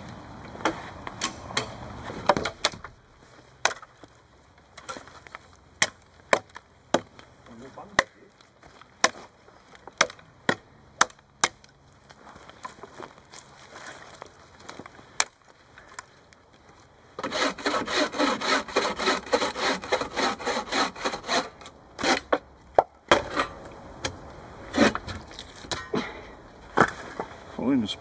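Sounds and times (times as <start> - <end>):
hand saw cutting a log: 17.2 - 22.4, 24.7 - 25.2.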